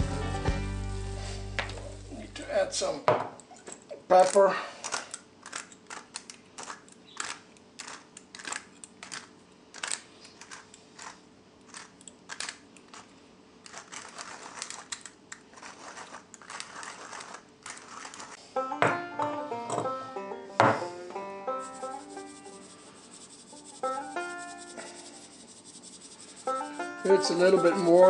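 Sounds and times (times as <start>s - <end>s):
pepper mill grinding: 5.1s - 18.4s, 21.5s - 28.0s.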